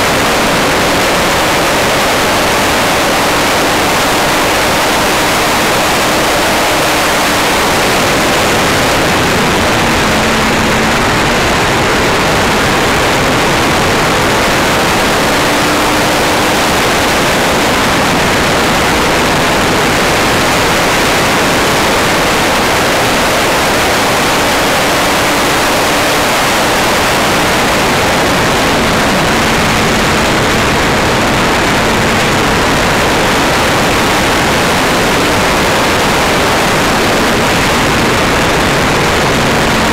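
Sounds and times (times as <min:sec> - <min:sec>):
faint motorcycle engine: 0:00.0 - 0:38.0
wind rushing over microphone: 0:00.0 - 0:39.9.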